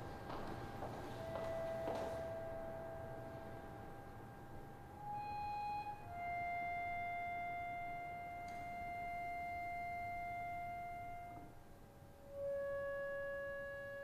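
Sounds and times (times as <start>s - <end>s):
bowed string instrument notes: 5.0s - 11.6s, 12.2s - 14.0s.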